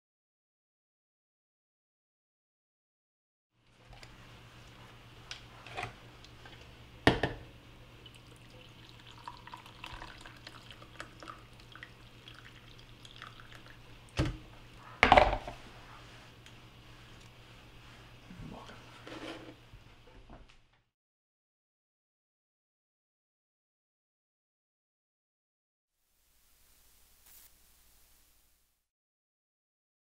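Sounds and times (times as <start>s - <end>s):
kettle knocking on its base: 7.1s - 7.4s
water pouring into a mug: 8.0s - 14.2s.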